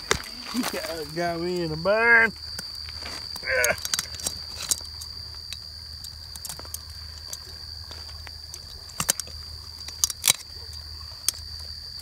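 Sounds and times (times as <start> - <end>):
high insect trill: 0.0 - 12.0
short grunt: 3.4 - 3.8.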